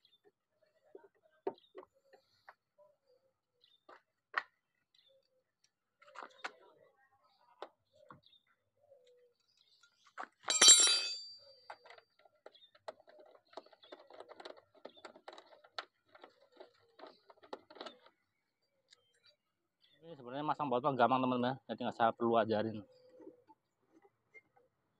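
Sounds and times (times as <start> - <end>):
metallic clatter with ring: 10.4 - 11.8.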